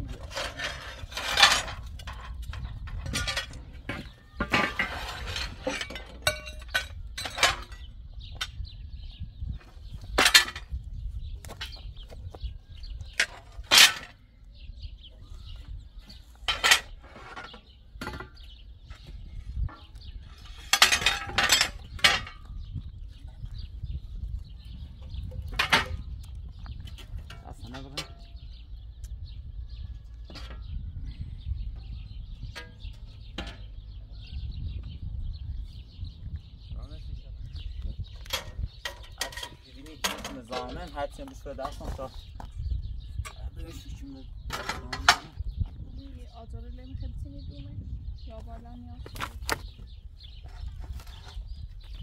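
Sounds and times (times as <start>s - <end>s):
knocks and clinks of hard objects: 0.3s - 8.6s, 10.0s - 10.8s, 16.4s - 22.7s, 25.0s - 28.4s, 38.2s - 42.5s.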